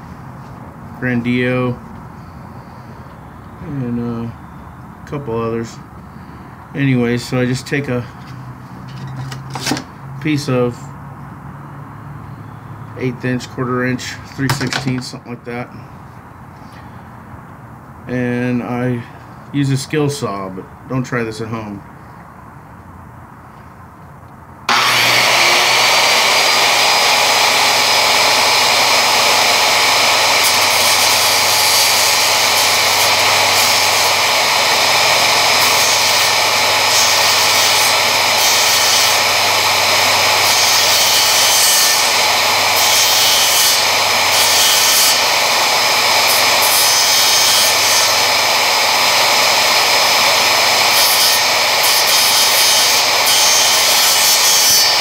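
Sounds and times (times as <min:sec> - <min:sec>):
circular saw cutting wood: 0:24.7 - 0:55.0.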